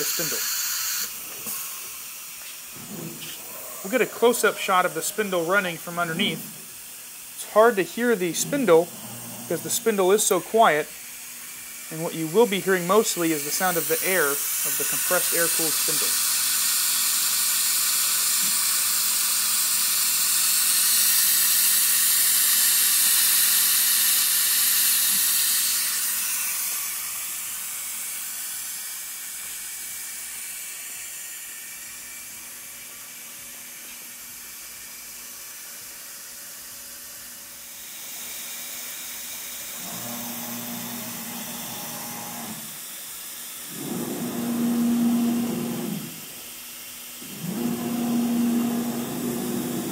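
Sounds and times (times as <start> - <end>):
loud steady air hiss: 0.0 - 49.9
humming motor whine: 39.8 - 42.8, 43.7 - 46.4, 47.2 - 49.9.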